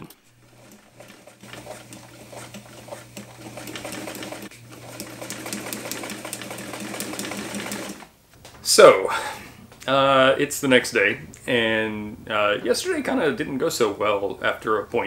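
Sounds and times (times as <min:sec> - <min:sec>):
sewing machine stitching: 0:00.4 - 0:08.1.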